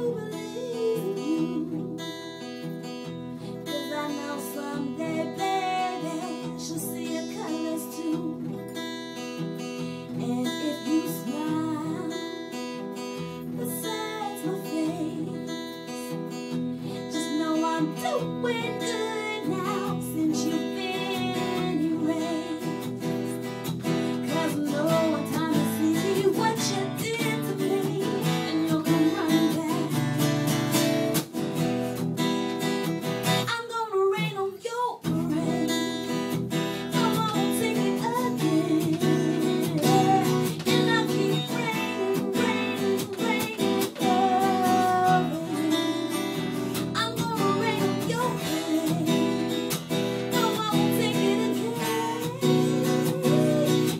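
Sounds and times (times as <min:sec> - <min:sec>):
woman singing: 0:00.0 - 0:30.8, 0:33.2 - 0:53.9
acoustic guitar strumming chords: 0:00.0 - 0:33.5, 0:35.1 - 0:53.9.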